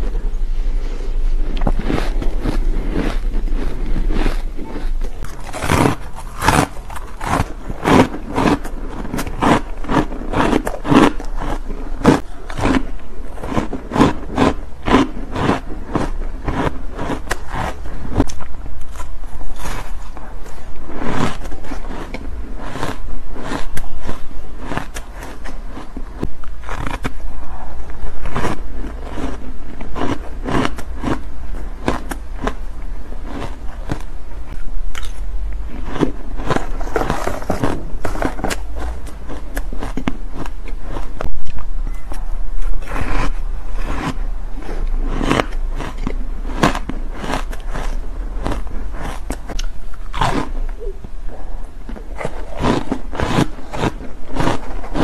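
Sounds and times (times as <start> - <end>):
steady low hum: 0.0 - 55.0
ice being crunched: 1.6 - 12.9.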